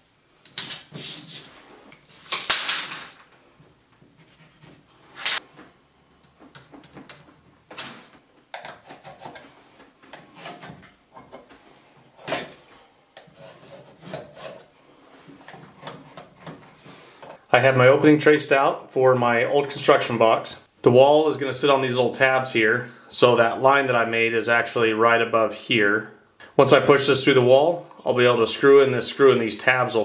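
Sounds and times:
tape ripping off roll: 0:02.1 - 0:03.3, 0:05.1 - 0:05.4.

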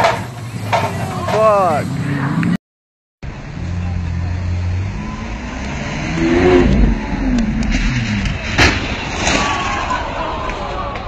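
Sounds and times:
car engine revving: 0:03.2 - 0:09.1
sharp crack: 0:05.6 - 0:11.0.

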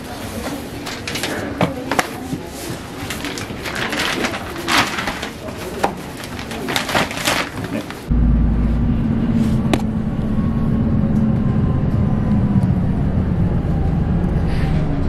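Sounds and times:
vehicle engine drone: 0:08.1 - 0:15.0.

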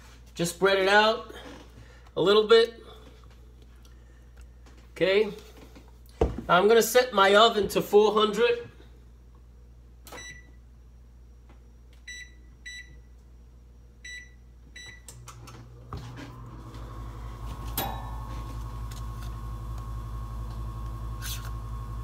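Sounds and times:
faint oven whine: 0:00.0 - 0:22.0
oven keypress beeps: 0:10.1 - 0:10.5, 0:12.1 - 0:13.0, 0:14.0 - 0:15.2
oven humming: 0:14.8 - 0:22.0.

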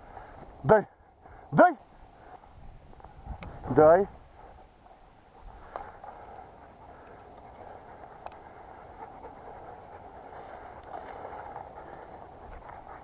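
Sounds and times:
footsteps through dry grass: 0:00.0 - 0:13.0.

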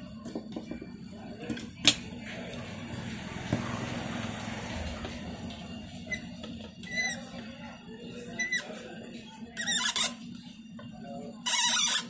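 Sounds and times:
metal flange squeaking: 0:09.5 - 0:10.3.

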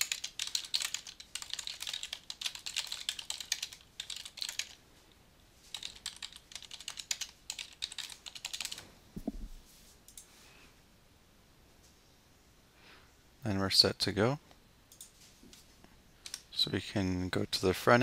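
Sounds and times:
keyboard typing: 0:00.0 - 0:04.8, 0:05.7 - 0:09.5
soft dull thump: 0:09.2 - 0:09.6.

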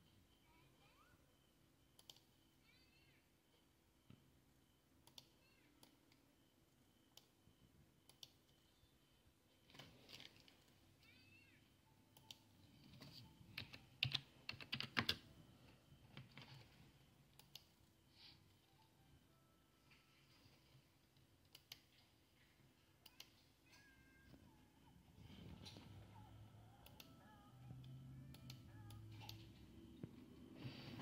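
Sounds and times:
computer clicks: 0:01.9 - 0:02.4, 0:05.0 - 0:06.2, 0:08.0 - 0:08.6, 0:12.1 - 0:15.3, 0:17.3 - 0:17.9, 0:21.1 - 0:22.1, 0:26.8 - 0:29.6
keyboard typing: 0:12.1 - 0:18.0, 0:25.2 - 0:30.2.

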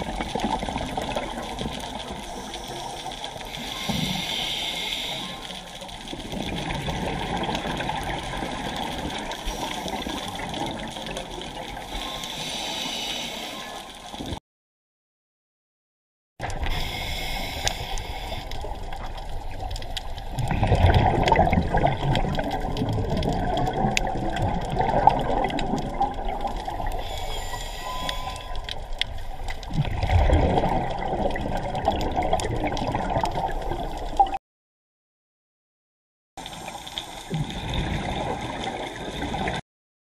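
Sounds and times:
underwater watery rush: 0:00.0 - 0:14.4, 0:16.4 - 0:34.4, 0:36.4 - 0:39.6
diver exhaust bubbles: 0:20.3 - 0:26.9, 0:29.7 - 0:34.4.

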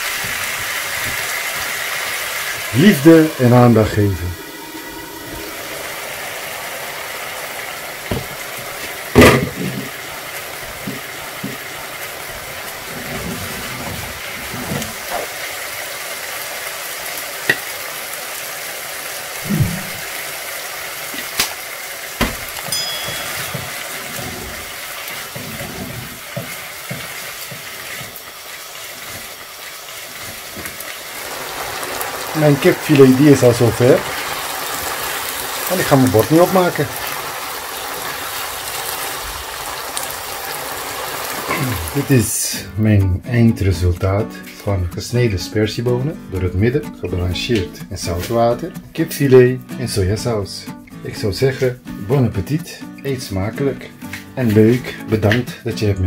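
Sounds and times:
meat sizzling in a frying pan: 0:00.0 - 0:42.7.

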